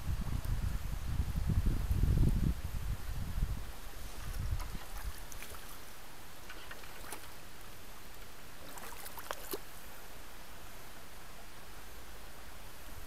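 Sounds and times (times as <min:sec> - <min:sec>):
stream water rushing: 0:03.8 - 0:11.1.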